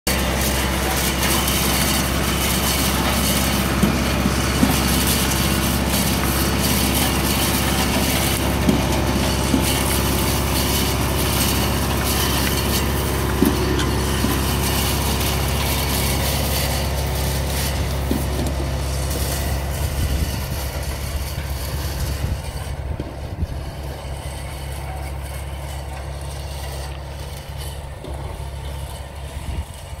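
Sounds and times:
tractor engine running: 0.0 - 30.0
cutter drums chopping vine canes: 0.1 - 19.6.

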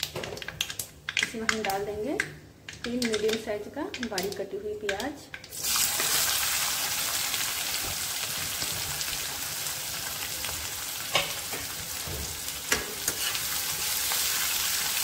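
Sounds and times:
onions sizzling in oil: 5.5 - 15.0.

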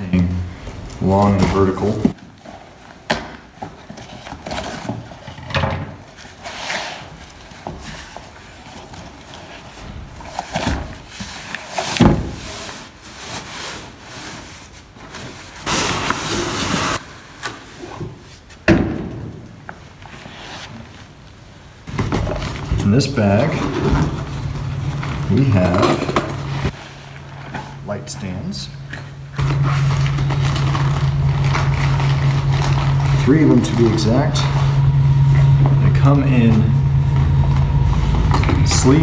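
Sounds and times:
cardboard rustling and scraping: 0.7 - 18.6, 29.4 - 39.0.

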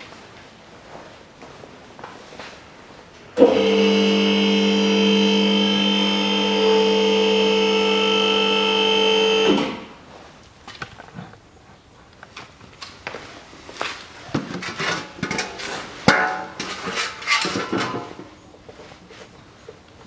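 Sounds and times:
electric lift motor whining: 3.4 - 10.0.

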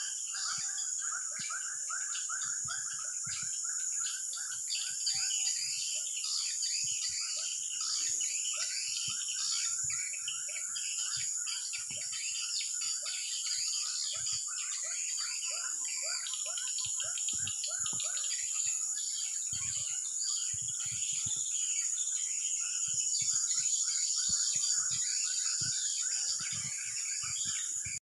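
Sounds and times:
birds chirping: 0.0 - 28.0
high-pitched insect drone: 0.0 - 28.0.

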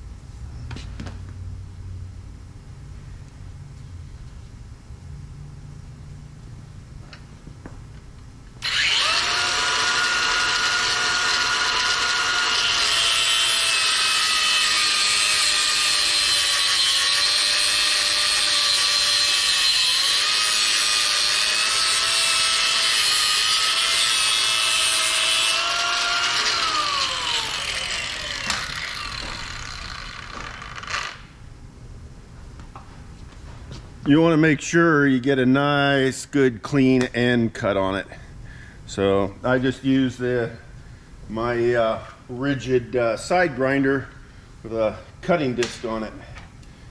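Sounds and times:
angle grinder cutting hose: 8.6 - 31.3.

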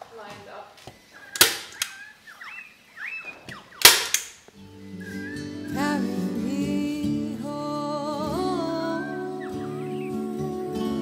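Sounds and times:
staple gun snapping: 1.4 - 2.0, 3.8 - 4.4
music with singing: 4.7 - 11.0.

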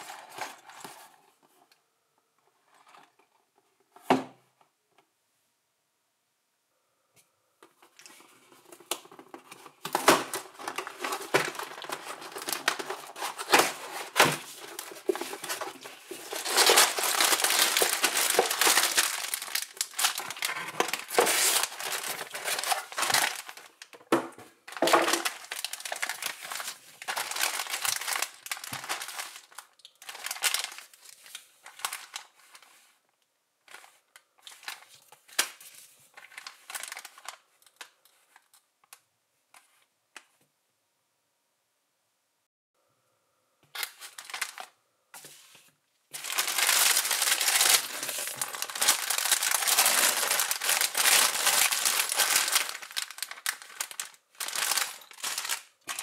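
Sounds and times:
packaging crinkling and tearing: 7.8 - 32.7, 33.7 - 38.6, 43.8 - 44.8, 46.1 - 56.0.

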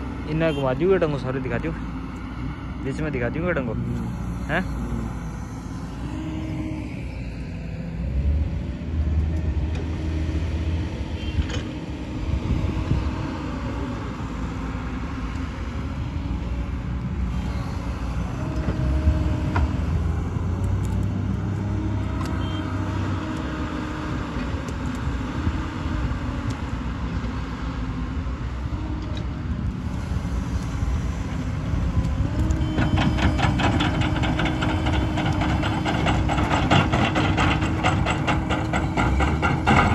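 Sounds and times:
heavy diesel engines: 0.0 - 39.9.

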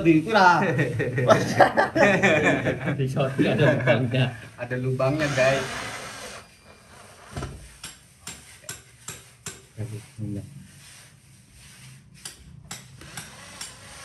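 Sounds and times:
drill low buzzes: 5.1 - 6.5
drill clicking: 5.2 - 6.4, 13.0 - 14.0.

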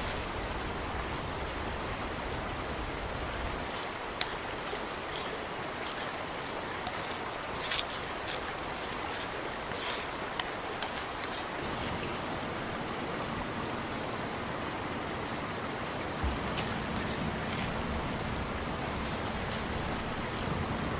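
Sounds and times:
wooden spoon scraping bowl: 3.7 - 11.9
outdoor rushing hiss: 16.0 - 20.9.

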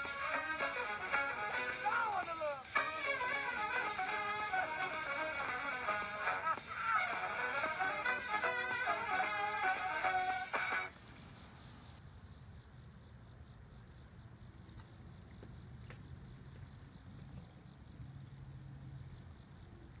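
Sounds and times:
fountain water jets hissing: 0.0 - 10.9
music: 0.0 - 10.9.

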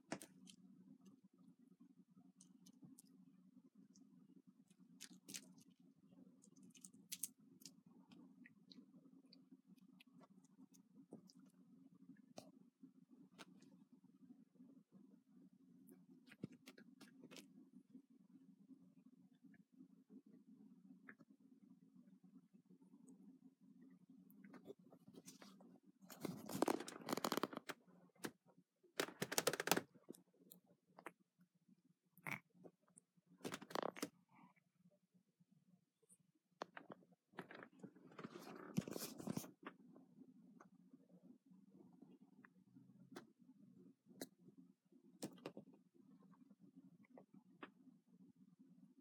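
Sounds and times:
low steady hum: 0.0 - 49.0
scratching and rubbing on microphone: 25.1 - 27.7, 37.4 - 39.6.

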